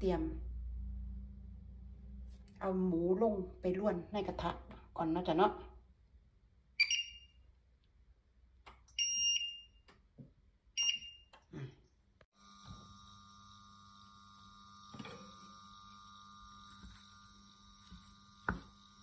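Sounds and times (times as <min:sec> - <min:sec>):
induction hob hum and whine: 0:00.0 - 0:03.1, 0:12.3 - 0:19.0
short high electronic beeps: 0:06.8 - 0:07.3.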